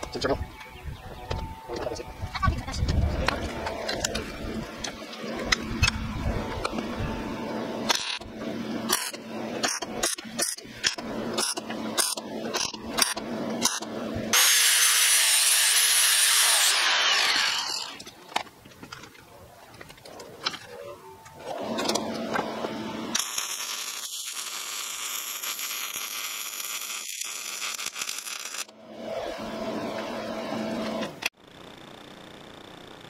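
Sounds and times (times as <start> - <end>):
electric arc welding: 7.9 - 18.0, 23.0 - 28.7.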